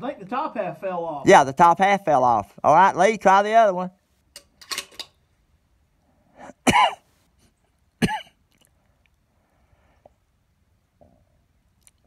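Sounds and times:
person coughing: 6.4 - 7.0, 8.0 - 8.4.

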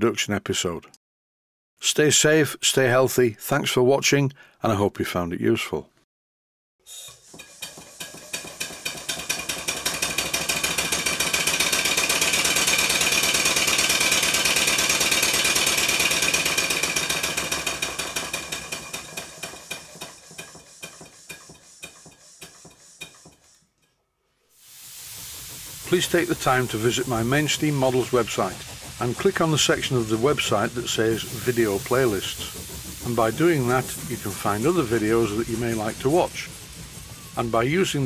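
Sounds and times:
model steam engine exhaust beats: 6.8 - 23.7, 24.6 - 38.0.

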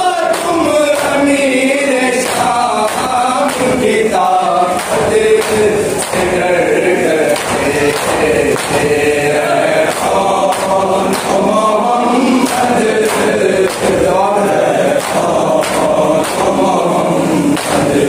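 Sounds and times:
crowd of men chanting: 0.0 - 18.0
hands slapping chests: 2.2 - 3.8, 4.8 - 6.4, 7.3 - 9.0, 9.9 - 11.6, 12.4 - 14.1, 15.0 - 16.6, 17.5 - 18.0.

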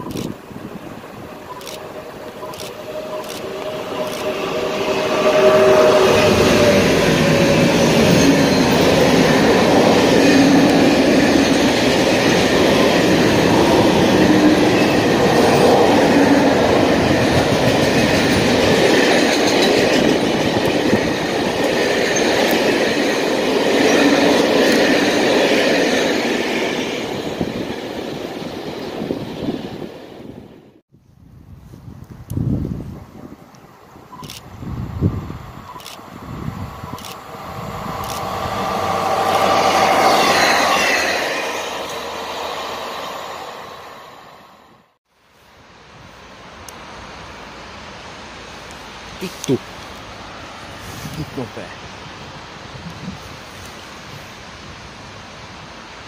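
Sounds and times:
freight train rumbling on rails: 0.0 - 30.8, 34.1 - 45.0.

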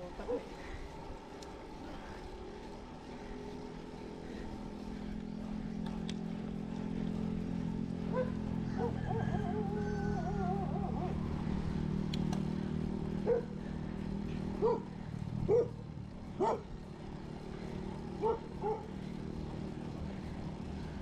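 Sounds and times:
steady low hum: 0.0 - 21.0
dog barking: 13.2 - 13.5, 14.6 - 14.9, 15.5 - 15.8, 16.4 - 16.6, 18.2 - 18.9.

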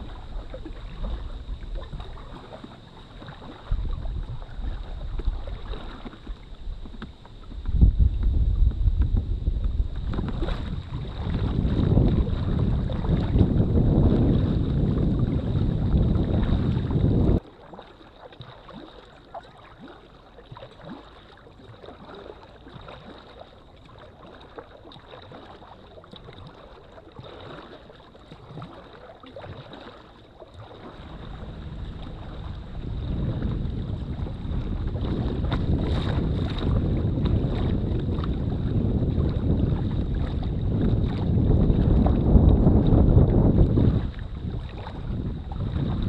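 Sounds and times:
wind buffeting microphone: 0.0 - 17.4, 30.6 - 46.0
paddle splashes and drips: 0.0 - 46.0.

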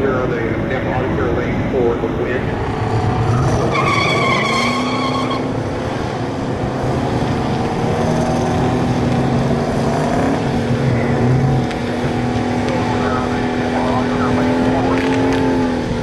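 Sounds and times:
loud car engines running: 0.0 - 16.0
tire squeal: 2.8 - 5.8.

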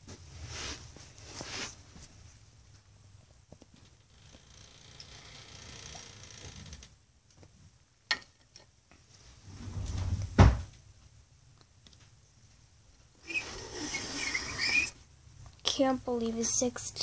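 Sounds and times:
toys rubbing on carpet: 13.3 - 15.0.

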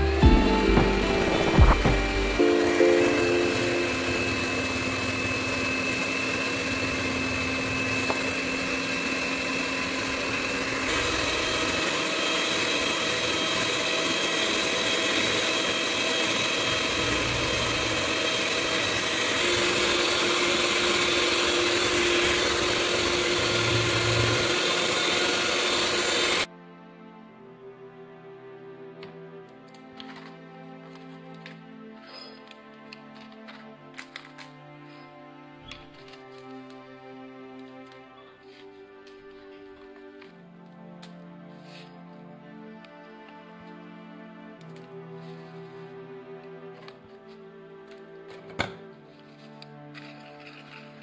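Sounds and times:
electric hand mixer running: 0.0 - 26.5.

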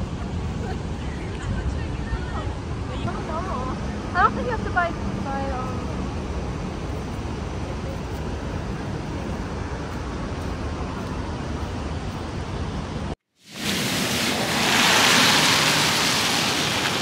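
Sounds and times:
city traffic: 0.0 - 17.0
car tyres hissing on wet road: 13.4 - 17.0.

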